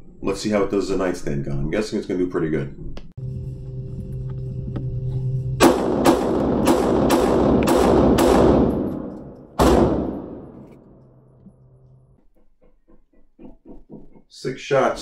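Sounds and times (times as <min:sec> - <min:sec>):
pistol shots echoing: 0:05.6 - 0:10.9.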